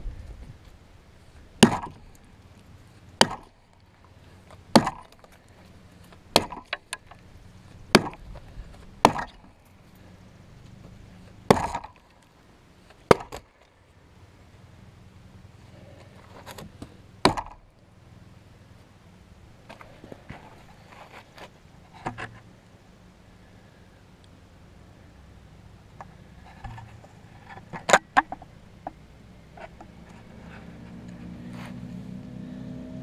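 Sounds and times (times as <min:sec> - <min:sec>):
axe chopping into log: 0:01.6 - 0:02.1, 0:03.2 - 0:03.6, 0:04.7 - 0:05.3, 0:06.3 - 0:07.1, 0:07.9 - 0:08.4, 0:09.0 - 0:09.6, 0:11.5 - 0:12.0, 0:13.1 - 0:13.5, 0:16.6 - 0:17.7.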